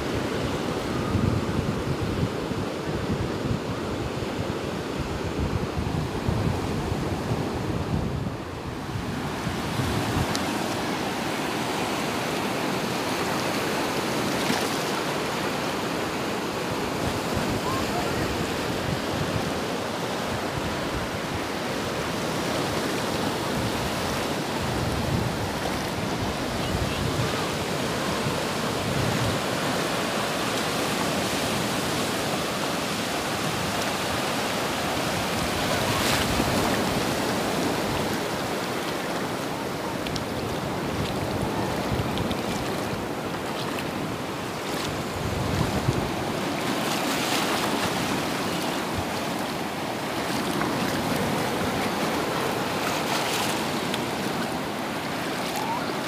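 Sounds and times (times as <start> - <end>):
waves washing up a shore: 0.0 - 56.0.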